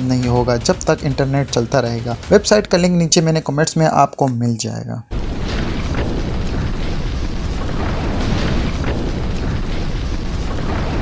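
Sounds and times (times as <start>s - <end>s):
faint fire crackles: 5.1s - 11.0s
rumble of fire burning: 5.1s - 11.0s.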